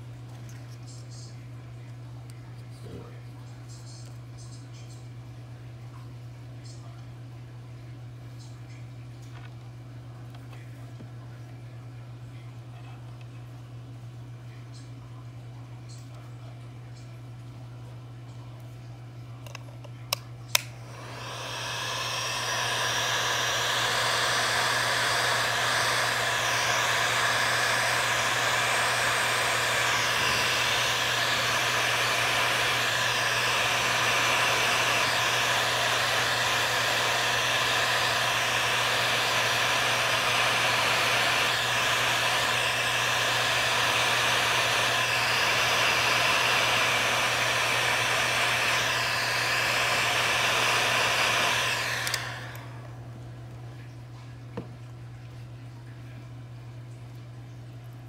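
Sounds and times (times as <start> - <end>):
heat gun blowing air: 20.5 - 52.9.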